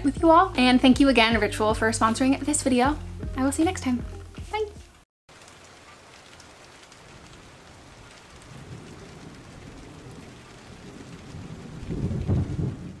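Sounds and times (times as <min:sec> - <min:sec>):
steady rain: 0:05.3 - 0:13.0
thunder rumbling: 0:07.0 - 0:13.0.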